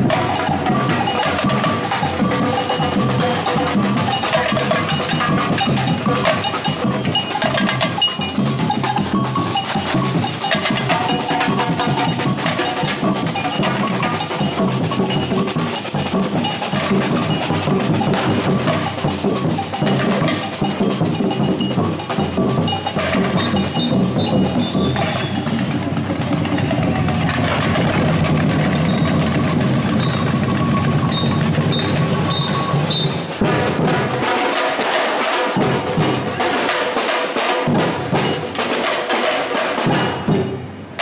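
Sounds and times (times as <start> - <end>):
samba percussion drumming: 0.0 - 41.0.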